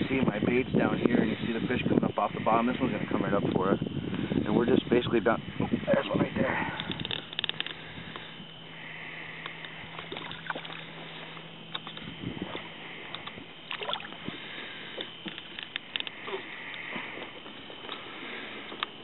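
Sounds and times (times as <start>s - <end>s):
low steady hum: 0.0s - 19.0s
water lapping: 5.5s - 19.0s
fish splashing at surface: 13.7s - 14.2s.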